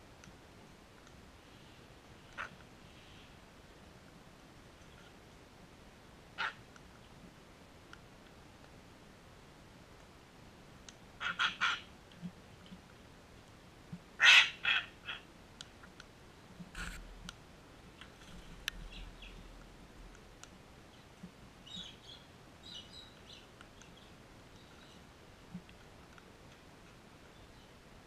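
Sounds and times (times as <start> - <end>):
cockatoos squawking: 11.2 - 11.9, 14.2 - 15.2.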